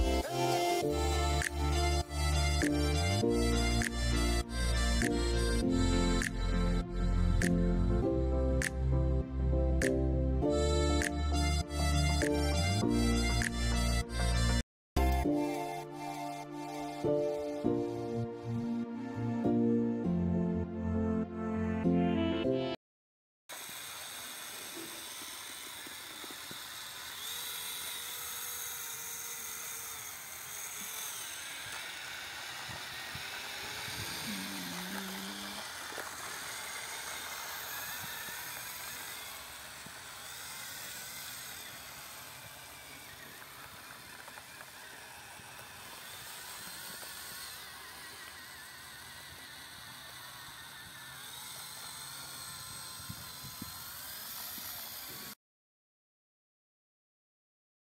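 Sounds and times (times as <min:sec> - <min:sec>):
small electric motor whirring: 0:00.0 - 0:09.2, 0:09.8 - 0:19.7, 0:23.5 - 0:55.4
music: 0:00.0 - 0:22.8.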